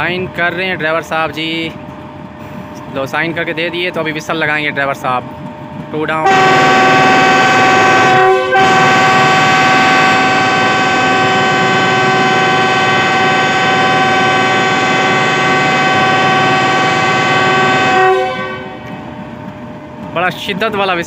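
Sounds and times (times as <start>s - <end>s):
locomotive air horn blast: 6.2s - 18.9s.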